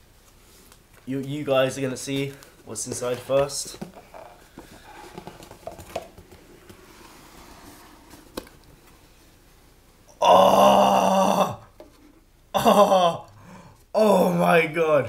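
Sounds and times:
cardboard box rustling and scraping: 3.0s - 8.4s.

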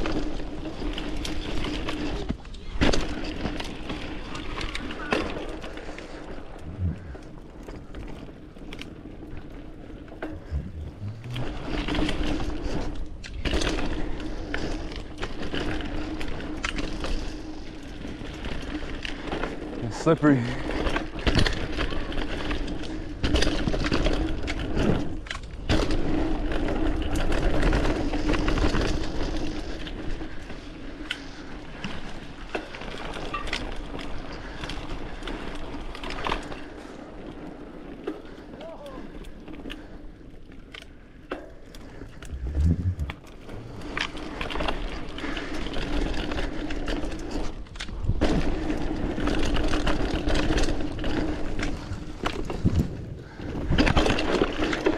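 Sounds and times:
bike tyres on dirt trail: 0.0s - 54.9s
steady buzz: 10.4s - 11.9s, 42.2s - 43.6s.

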